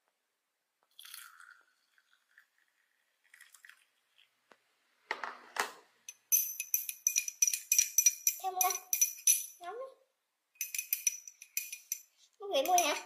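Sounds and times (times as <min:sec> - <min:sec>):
tea trickling into a glass: 0:00.9 - 0:04.3.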